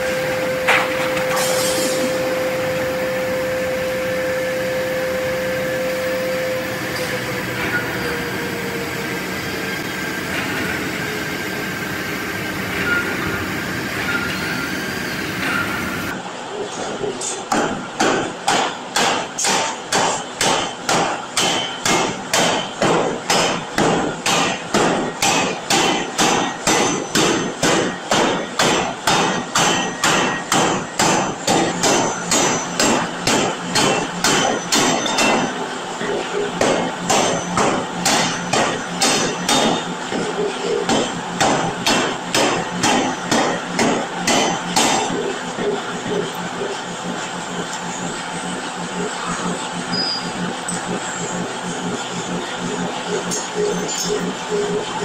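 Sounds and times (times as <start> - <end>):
power hammer pounding steel: 17.4 - 47.2.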